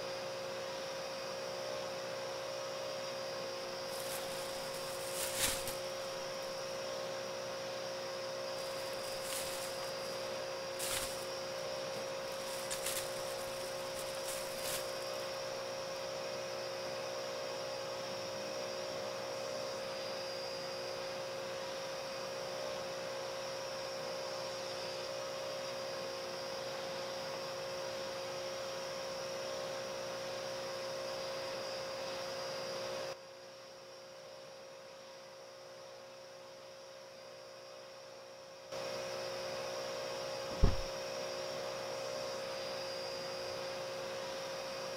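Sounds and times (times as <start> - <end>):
electrical hum: 0.0 - 17.6, 40.3 - 44.9
hiss: 3.9 - 5.9, 8.6 - 11.3.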